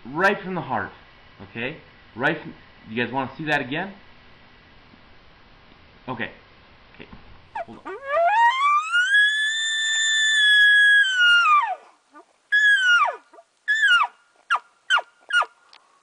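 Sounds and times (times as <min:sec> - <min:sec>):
elk bugling call: 0:07.6 - 0:15.5.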